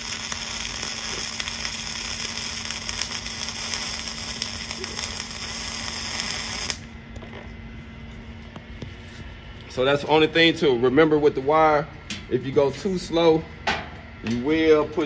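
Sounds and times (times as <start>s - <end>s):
welding arc crackling hiss: 0.0s - 6.9s.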